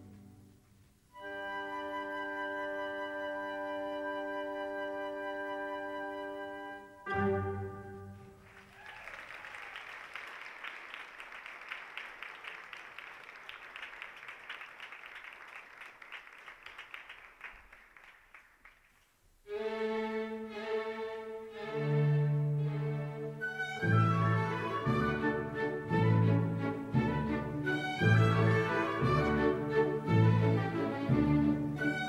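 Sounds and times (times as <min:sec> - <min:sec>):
orchestral ballet music: 0:00.0 - 0:08.6, 0:19.5 - 0:32.0
audience applauding: 0:08.3 - 0:19.1.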